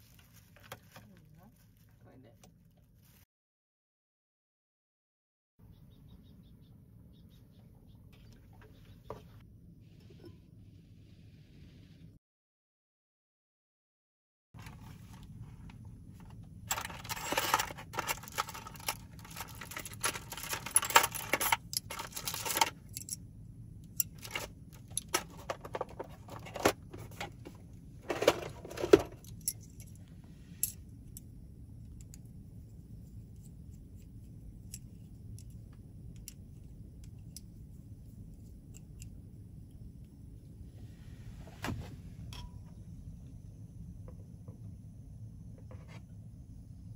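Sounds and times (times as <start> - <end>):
faint low hum: 14.6 - 46.9
metal chopsticks rattling in case: 16.7 - 23.2.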